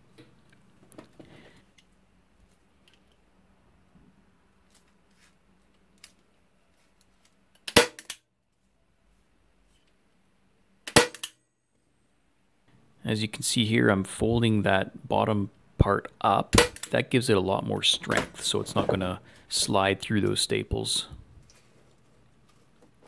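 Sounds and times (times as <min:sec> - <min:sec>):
faint handling noise: 0:04.0 - 0:07.6, 0:21.0 - 0:23.0
staple gun snaps: 0:10.9 - 0:11.4.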